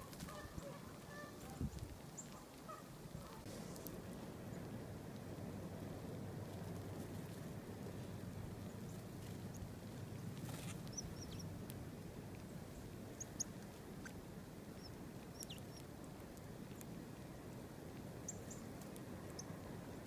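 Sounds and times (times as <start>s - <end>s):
background noise rush: 0.0s - 20.0s
songbirds chip notes: 8.0s - 20.0s.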